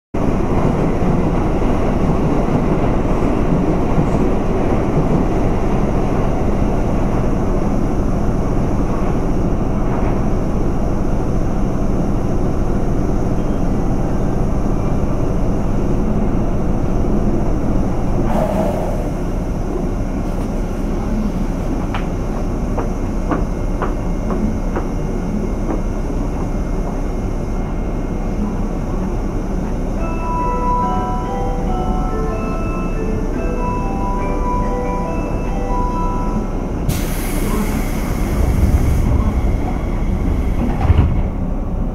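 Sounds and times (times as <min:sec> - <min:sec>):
brief burst of noise: 0:18.2 - 0:19.3.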